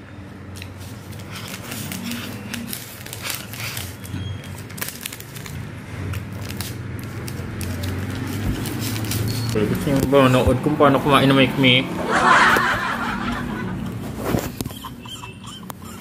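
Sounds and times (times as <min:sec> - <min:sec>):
plastic snack packet crinkling: 0:01.2 - 0:09.5.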